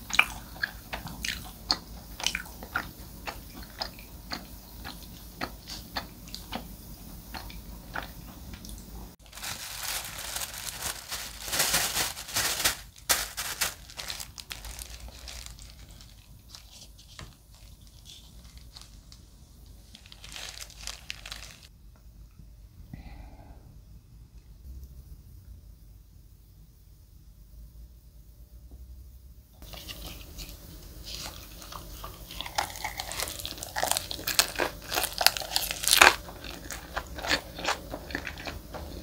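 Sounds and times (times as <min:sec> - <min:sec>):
plastic bag crinkling: 0:09.2 - 0:21.7, 0:29.6 - 0:38.6.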